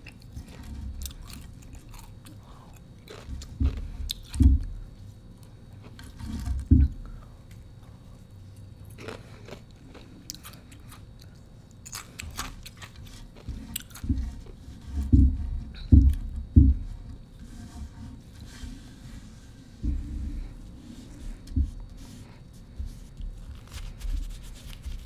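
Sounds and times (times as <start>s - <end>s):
ice being chewed: 0.0s - 4.4s, 8.8s - 14.6s.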